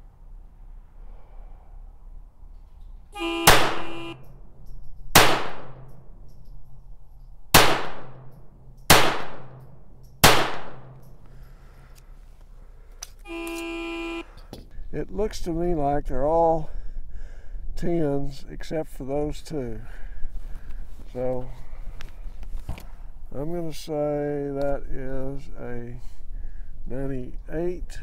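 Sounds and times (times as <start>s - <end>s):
steady beep: 3.2s - 4.2s, 13.3s - 14.3s
pistol shots with ringing echo: 3.4s - 6.3s, 7.5s - 11.1s.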